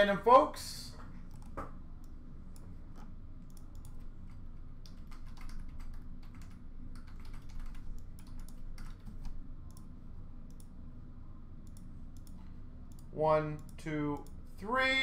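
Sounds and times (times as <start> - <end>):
low steady hum: 0.0 - 15.0
typing on computer keyboard: 3.5 - 9.8.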